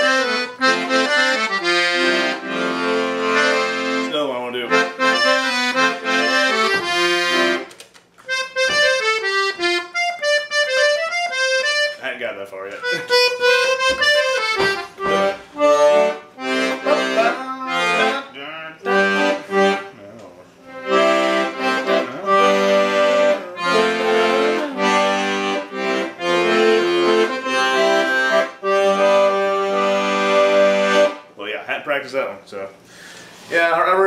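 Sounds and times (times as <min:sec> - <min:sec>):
accordion playing a tune: 0:00.0 - 0:31.4.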